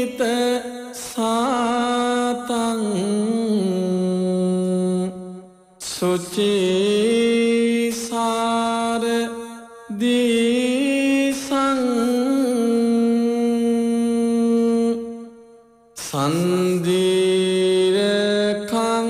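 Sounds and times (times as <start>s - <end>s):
monk chanting: 0.0s - 15.4s, 16.0s - 19.0s.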